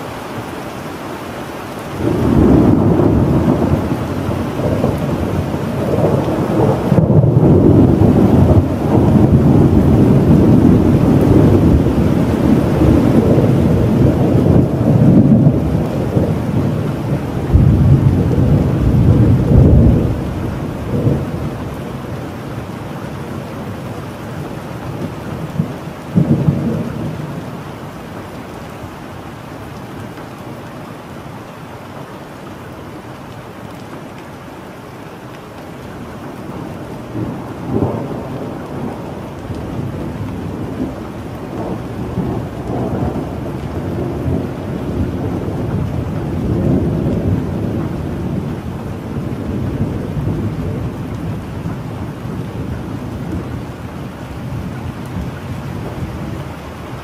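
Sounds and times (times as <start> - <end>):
steady rain: 0.0 - 57.0
thunderclap: 2.0 - 21.5
rolling thunder: 2.0 - 22.7, 23.3 - 27.5, 36.6 - 53.6.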